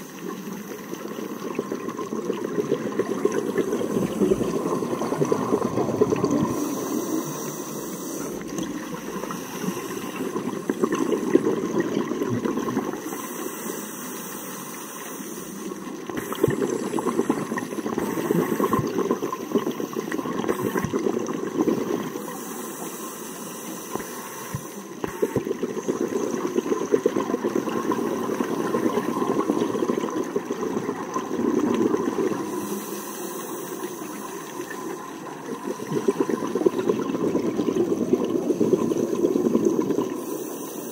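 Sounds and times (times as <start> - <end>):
exhaled bubbles: 0.0 - 13.6, 15.6 - 22.5, 23.9 - 40.9
regulator hiss: 2.9 - 26.7, 32.0 - 36.9, 40.0 - 40.9.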